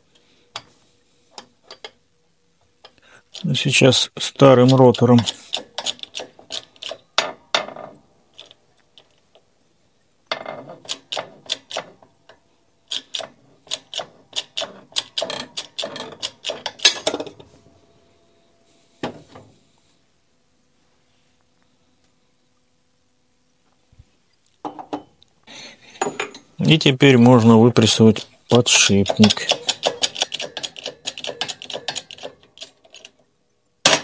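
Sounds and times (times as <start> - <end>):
shop press metallic ratcheting: 4.5 - 8.6, 12.9 - 17.2, 27.9 - 33.2.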